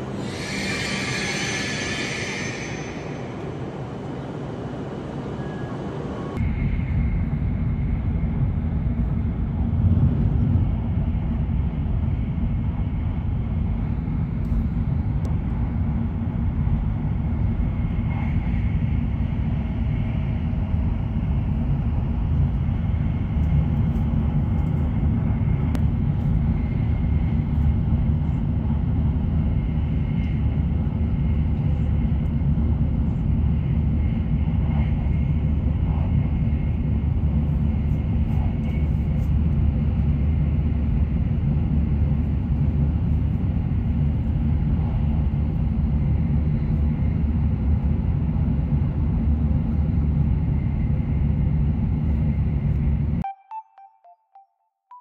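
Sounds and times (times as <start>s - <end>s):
train running low rumble: 0.0s - 53.2s
rushing hiss: 0.2s - 3.3s.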